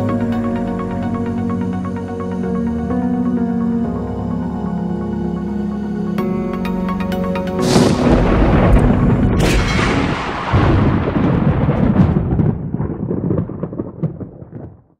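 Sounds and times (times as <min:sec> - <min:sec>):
background music: 0:00.0 - 0:11.2
sharp crack: 0:07.6 - 0:14.6
loud rumbling boom: 0:07.6 - 0:14.9.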